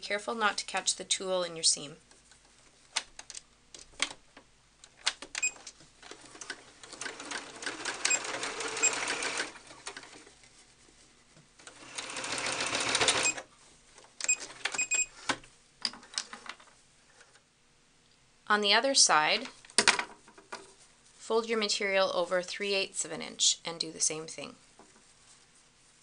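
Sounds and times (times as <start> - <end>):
sewing machine stitching: 6.1 - 10.3, 11.6 - 13.4.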